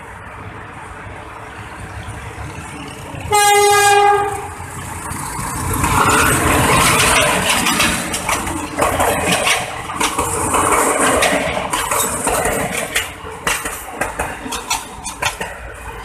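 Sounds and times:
train wheels clanking over rail joints: 3.6 - 16.0.

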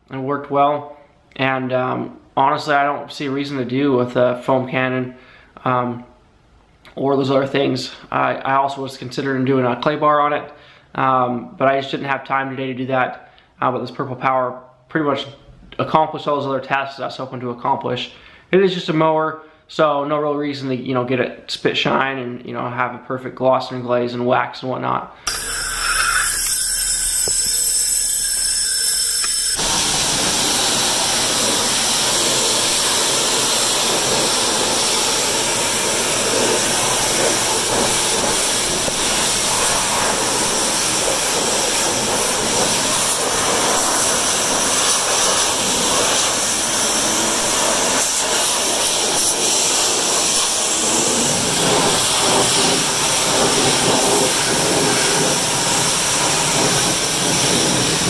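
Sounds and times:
pressure washer spraying water: 25.3 - 58.0.

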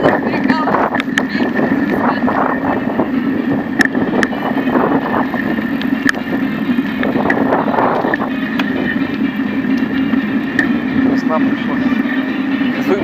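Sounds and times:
bike rattling over bumps: 0.0 - 13.0
tyres rumbling on asphalt: 0.0 - 13.0
wind on microphone: 0.0 - 13.0.

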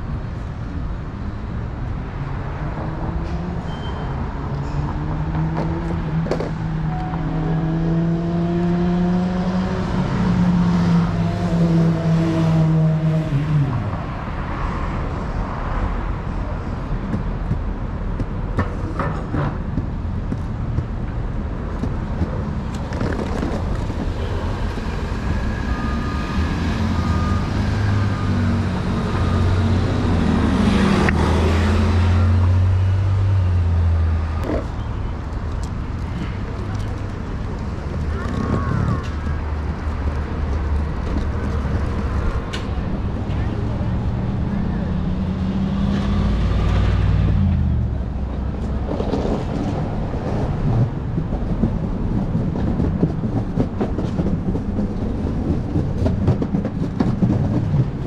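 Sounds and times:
low engine hum of heavy vehicle: 0.0 - 58.0
motor vehicles passing: 0.8 - 58.0.

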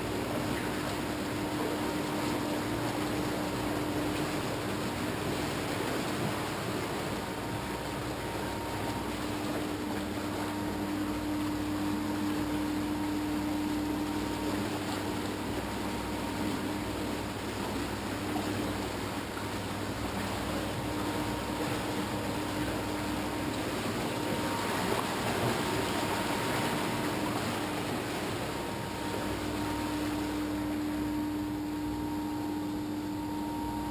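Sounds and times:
constant hum: 0.0 - 33.9
water rushing and churning: 0.0 - 33.9.

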